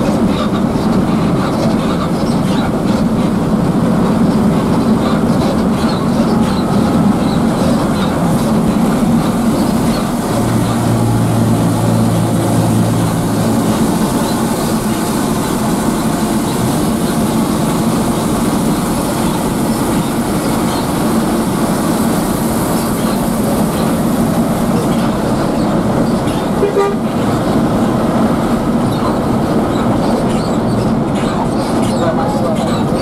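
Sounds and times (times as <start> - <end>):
coach engine and road noise: 0.0 - 33.0
horn toot: 26.6 - 27.2.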